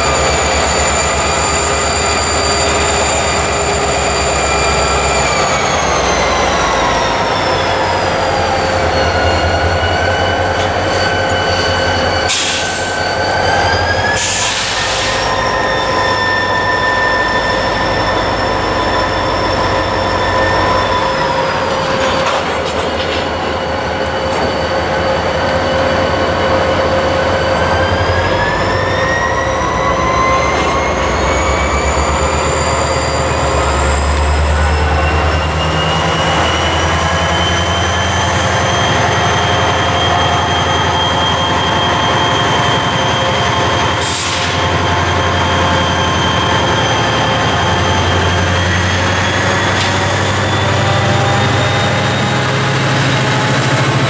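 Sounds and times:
diesel locomotive rumble: 0:00.0 - 0:54.0
train wheels squealing: 0:00.0 - 0:54.0.

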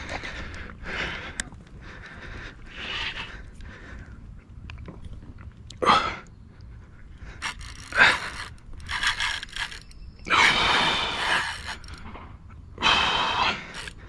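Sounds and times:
man gasping breaths: 0:00.0 - 0:04.4, 0:12.8 - 0:14.0
fishing reel clicks: 0:07.4 - 0:10.2, 0:10.9 - 0:12.0, 0:13.7 - 0:14.0.

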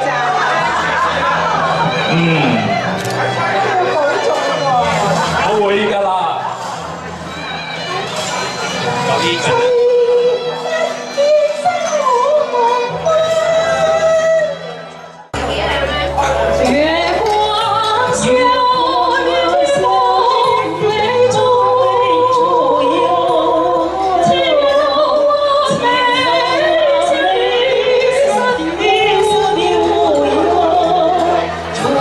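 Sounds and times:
instrumental accompaniment: 0:01.5 - 0:04.7
women singing a duet: 0:09.5 - 0:14.8, 0:16.6 - 0:32.0.

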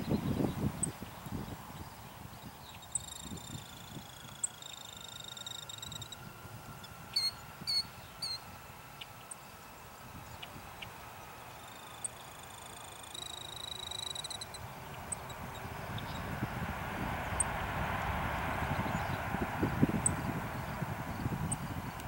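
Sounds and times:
bird calling: 0:00.0 - 0:16.5
distant jet engines whining: 0:00.0 - 0:22.0.

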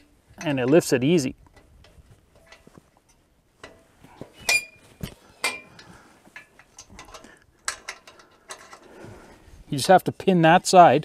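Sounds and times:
steel parts clinking: 0:01.6 - 0:09.0.

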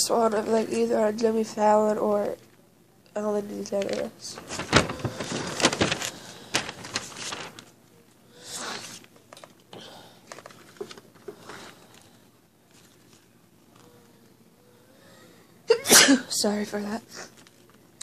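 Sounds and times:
rustling handling noise with clicks: 0:03.6 - 0:08.2, 0:09.0 - 0:12.1, 0:12.7 - 0:13.9, 0:17.3 - 0:17.9.

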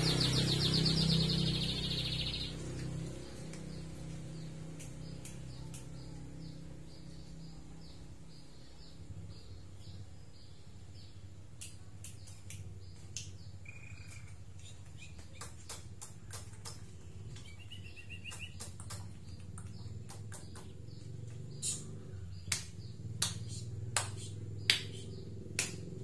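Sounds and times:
sharp bird clicks: 0:00.0 - 0:06.3, 0:11.5 - 0:26.0
rapid bird notes: 0:00.0 - 0:07.3, 0:11.7 - 0:26.0
bird calling: 0:13.6 - 0:15.6.

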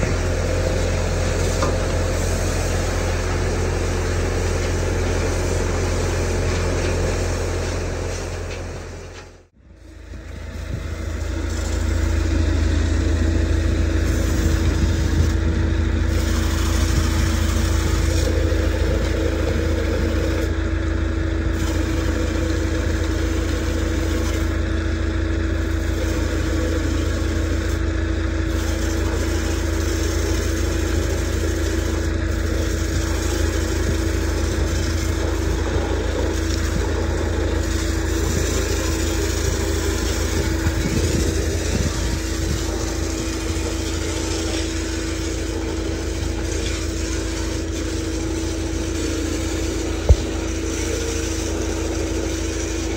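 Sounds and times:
water jet hissing on steel tank: 0:00.0 - 0:07.5, 0:13.6 - 0:20.5, 0:21.4 - 0:24.7, 0:25.4 - 0:27.8, 0:28.4 - 0:52.9
engine running steadily: 0:00.0 - 0:52.9.

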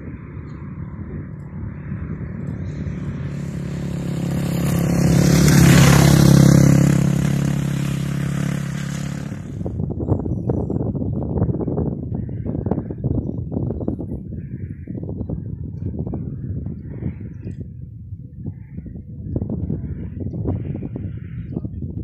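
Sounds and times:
motorcycle passing at speed: 0:00.0 - 0:10.2.

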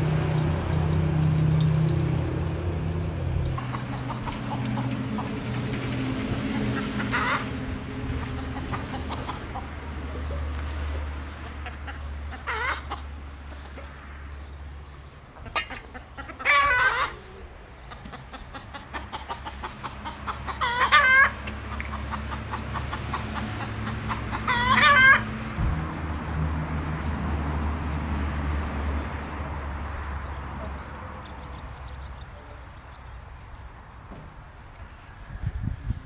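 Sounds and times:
chickens calling: 0:00.0 - 0:14.0, 0:15.3 - 0:26.3.

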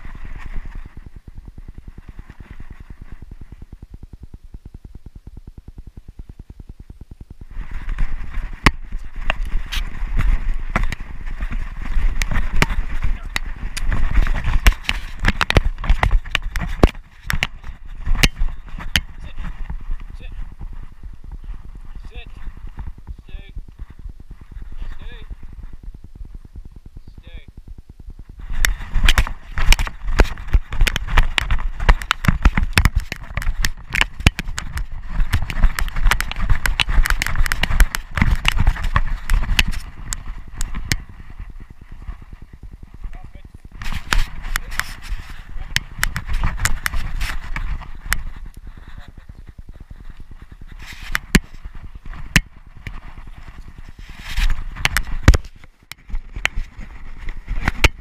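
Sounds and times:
dog paws thudding on ground: 0:07.5 - 0:26.7, 0:28.1 - 0:58.0.

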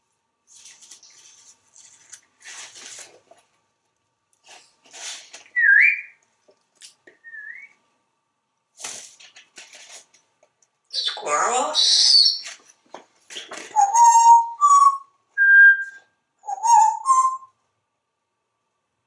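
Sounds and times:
parrot whistles: 0:05.6 - 0:06.2, 0:07.2 - 0:07.7, 0:13.7 - 0:17.5.

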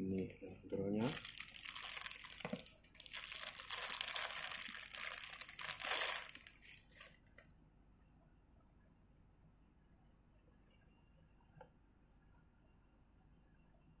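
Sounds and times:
plastic bag crinkling: 0:01.0 - 0:07.1.

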